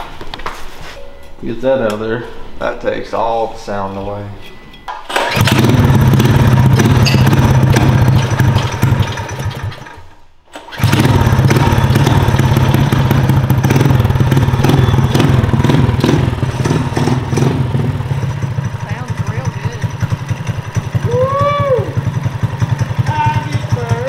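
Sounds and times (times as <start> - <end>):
small engine running: 5.2 - 10.0, 10.7 - 24.0.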